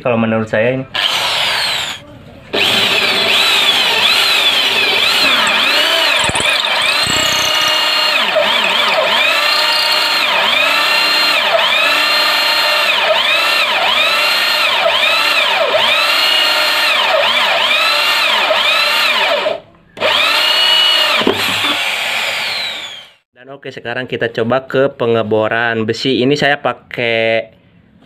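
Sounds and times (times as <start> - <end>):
drill cutting through wood: 1.0 - 23.3.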